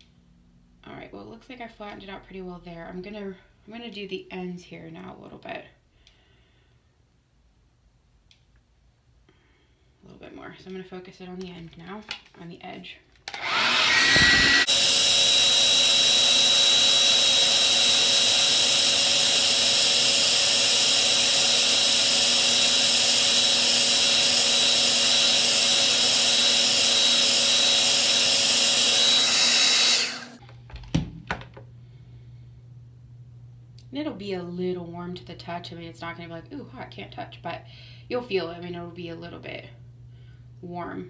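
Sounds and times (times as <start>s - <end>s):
hair dryer running: 13.2s - 30.4s.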